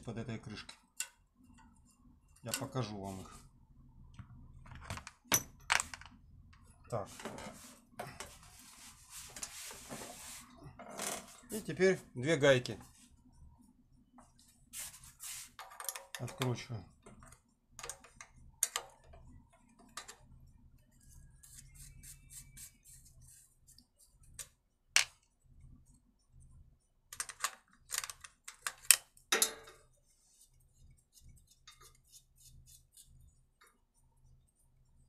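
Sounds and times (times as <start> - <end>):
spanner clicking on metal nuts: 17.8 - 19.1.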